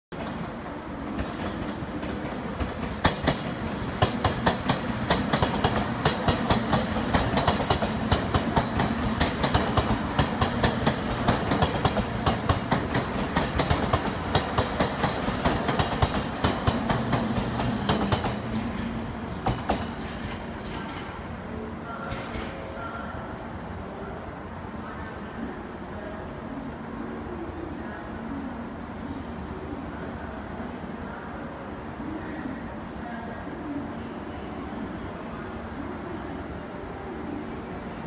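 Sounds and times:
train rumble: 0.1s - 22.8s.

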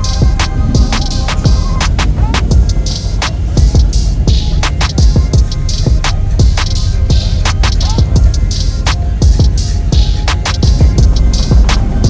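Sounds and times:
hip-hop beat music: 0.0s - 12.0s.

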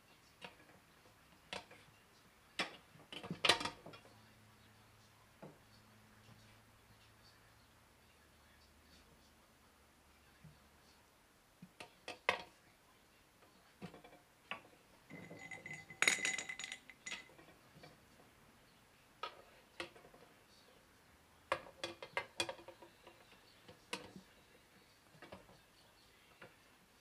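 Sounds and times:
ringing metal clatter: 15.1s - 17.5s.

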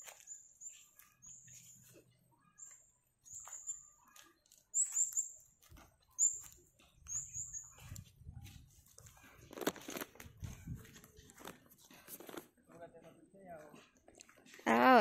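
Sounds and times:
small bird chirping: 0.0s - 8.1s
footsteps through grass: 0.0s - 12.5s.

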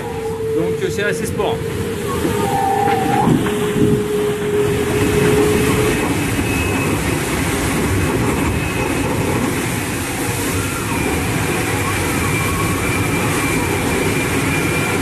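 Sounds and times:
steady whine: 0.0s - 8.6s
rush of wind and water: 0.0s - 15.0s.

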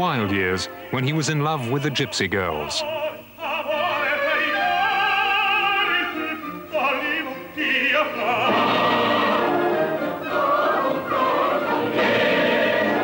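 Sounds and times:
operatic singing: 0.1s - 13.0s
classical accompaniment: 4.0s - 13.0s.

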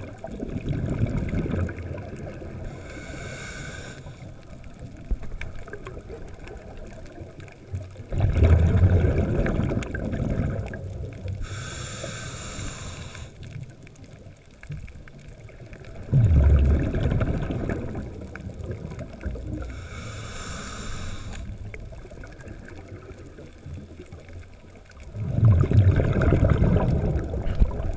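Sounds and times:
exhaled bubbles bursting: 0.0s - 2.7s, 5.4s - 11.4s, 15.8s - 19.8s, 24.9s - 27.9s
hissing inhale through regulator: 2.5s - 4.6s, 11.4s - 13.6s, 19.5s - 21.7s.

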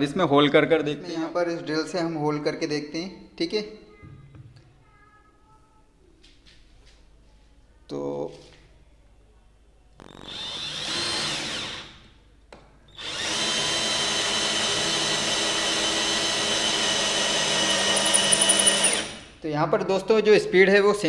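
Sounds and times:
cordless drill boring into wood: 10.0s - 12.1s, 13.0s - 19.3s.

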